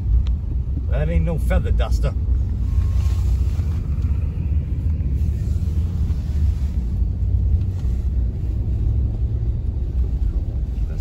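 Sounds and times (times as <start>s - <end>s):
car engine rumble: 0.0s - 11.0s
tyres on snowy road: 0.0s - 11.0s.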